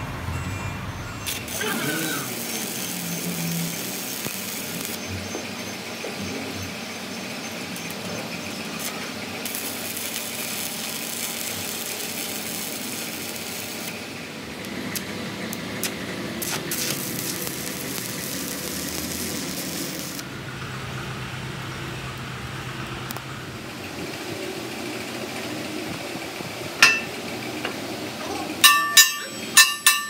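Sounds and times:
welding arc crackling and hissing: 1.2s - 20.3s
welding spatter pops: 1.3s - 5.0s, 8.8s - 13.9s, 14.6s - 20.2s.

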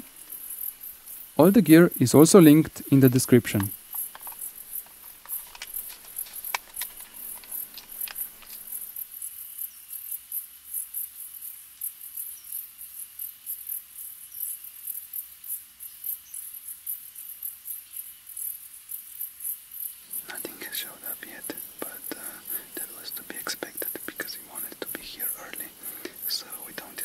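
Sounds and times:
crickets chirping: 0.0s - 27.0s
light clicks: 3.5s - 8.9s.

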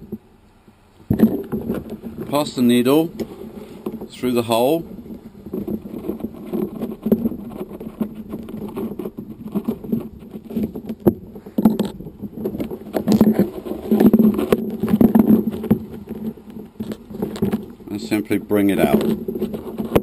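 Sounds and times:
small clicks taps and rustles: 5.0s - 20.0s.

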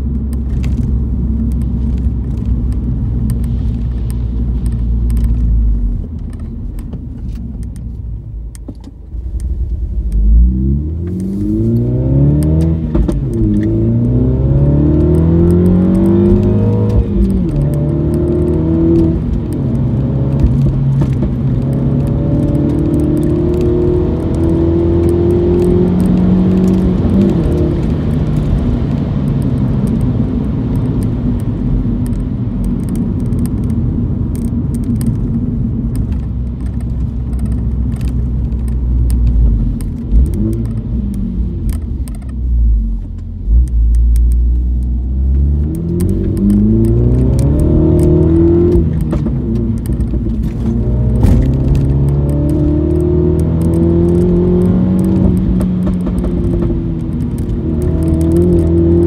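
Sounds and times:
car engine revving: 9.2s - 31.4s, 33.1s - 59.0s
exhaust pops: 45.7s - 52.7s.

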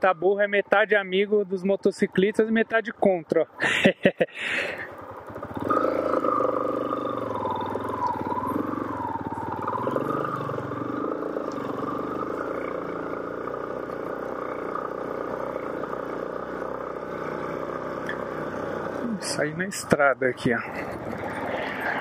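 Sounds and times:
motorcycle engine running: 4.7s - 22.0s.

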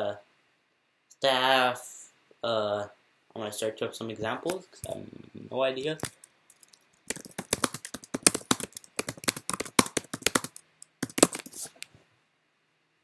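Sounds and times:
typing on computer keyboard: 6.0s - 11.6s.

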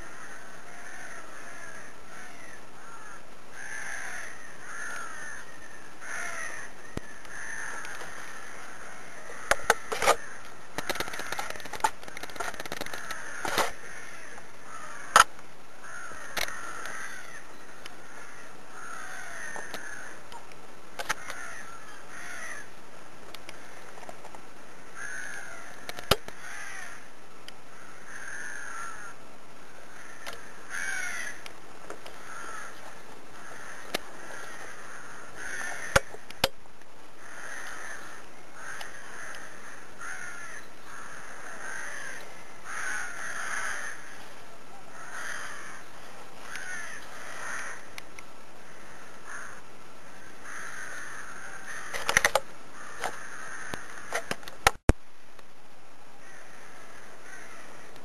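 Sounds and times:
birds harsh calls: 0.0s - 20.3s, 21.0s - 22.8s, 23.4s - 36.5s, 37.1s - 54.8s, 56.2s - 58.0s
sharp clicks: 9.5s - 13.8s, 25.3s - 26.4s, 51.9s - 54.9s.

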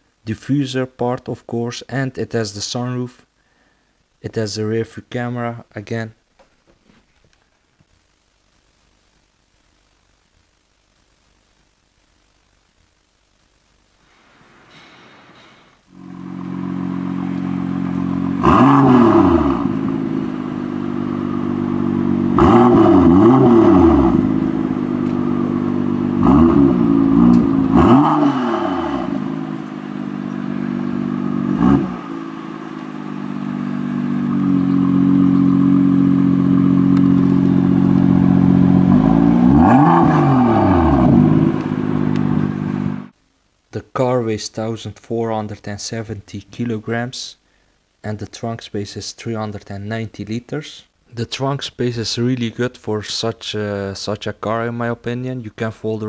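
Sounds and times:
car engine starting: 15.9s - 43.1s
car engine idling and revving: 16.0s - 43.1s.

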